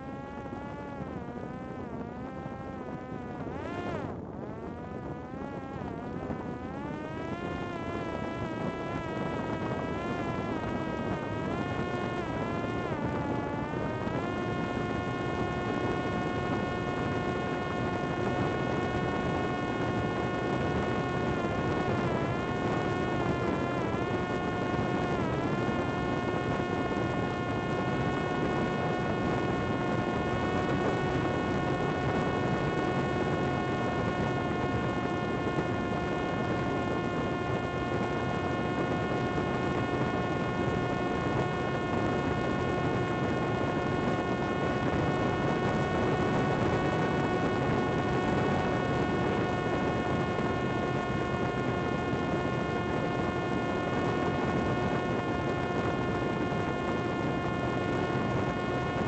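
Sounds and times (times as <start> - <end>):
drone motor and propeller whine: 0.0 - 59.0.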